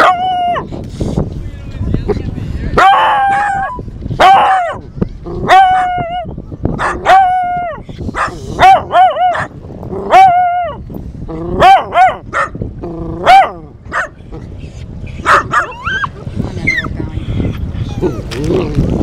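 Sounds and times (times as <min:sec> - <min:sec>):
small dog howling: 0:05.5 - 0:06.3, 0:07.0 - 0:07.8, 0:10.1 - 0:10.8.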